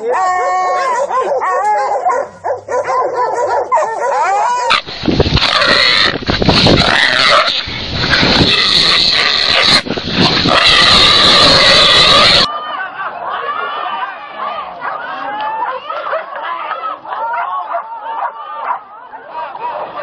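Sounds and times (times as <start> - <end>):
dogs yipping and whining: 0.0 - 4.9.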